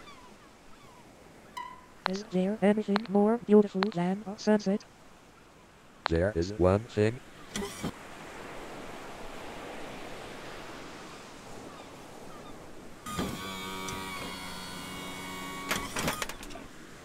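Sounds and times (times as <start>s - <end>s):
sharp clicks: 2.9s - 3.2s
ocean surf hissing: 4.4s - 15.7s.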